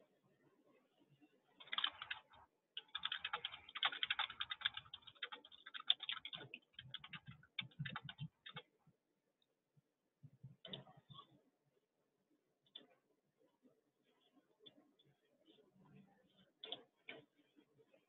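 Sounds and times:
typing on computer keyboard: 1.6 - 8.7.

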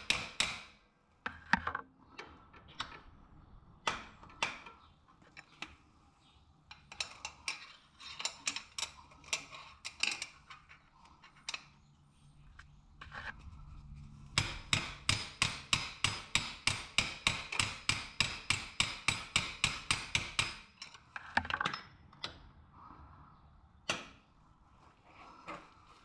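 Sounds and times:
hammer tapping on metal: 14.4 - 20.7.

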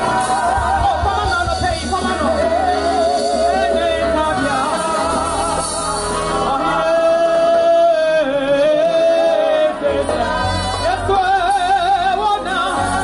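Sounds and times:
amplified band accompaniment: 0.0 - 13.0
choir singers singing with vibrato: 0.0 - 13.0.

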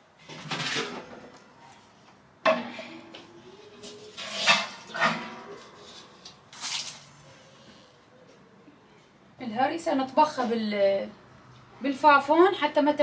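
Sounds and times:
metal cooking pots clanking: 4.2 - 5.6.

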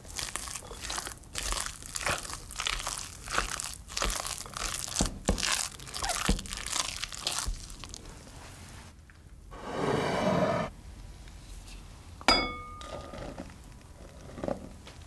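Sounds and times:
spoon scraping and squishing mash: 0.0 - 8.5.

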